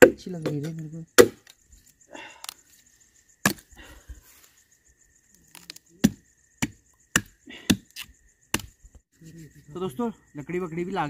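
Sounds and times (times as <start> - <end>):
blade chopping wood: 0.0 - 1.5, 3.4 - 3.6, 6.0 - 8.8
twigs snapping: 5.3 - 8.8.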